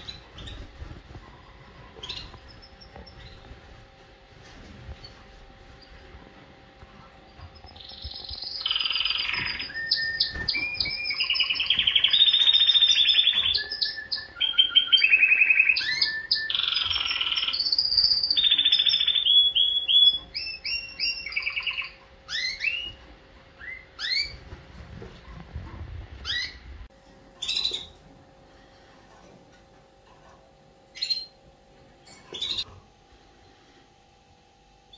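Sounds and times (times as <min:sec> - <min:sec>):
canary trilling: 0:00.0 - 0:03.8, 0:07.3 - 0:23.0, 0:23.6 - 0:24.4, 0:26.2 - 0:26.7, 0:27.4 - 0:28.0, 0:30.9 - 0:31.4, 0:32.0 - 0:32.7
canary chirping: 0:00.0 - 0:03.9, 0:06.8 - 0:24.6, 0:26.2 - 0:26.8, 0:27.4 - 0:28.1, 0:30.9 - 0:31.4, 0:32.0 - 0:32.7.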